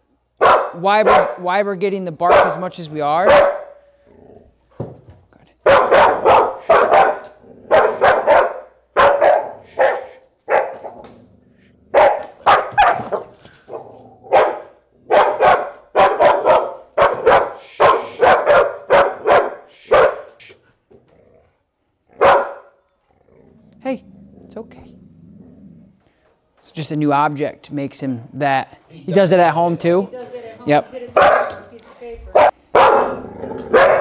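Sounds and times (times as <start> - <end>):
dog barking: 0.4 - 1.4, 2.3 - 2.6, 3.2 - 3.8, 5.6 - 11.0, 11.9 - 20.4, 22.2 - 22.8, 31.2 - 31.7, 32.3 - 34.0.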